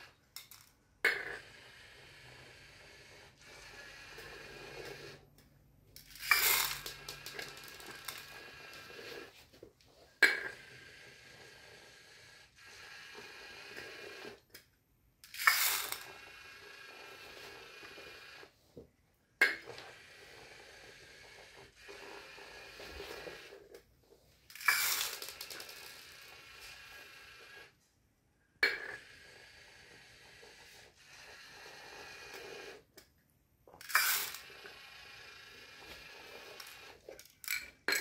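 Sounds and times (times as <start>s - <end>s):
small hard pieces clattering: 24.5s - 25.8s.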